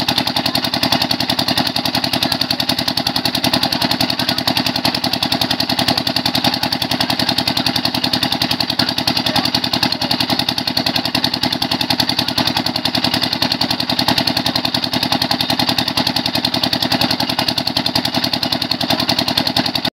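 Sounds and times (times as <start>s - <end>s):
pump engine running: 0.0s - 19.9s.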